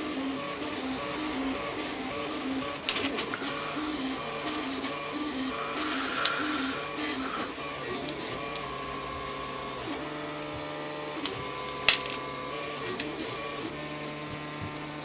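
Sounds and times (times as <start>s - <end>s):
printer stepper motors whining: 0.0s - 15.0s
sharp clicks of small parts: 5.8s - 8.7s, 10.4s - 13.2s, 14.8s - 15.0s.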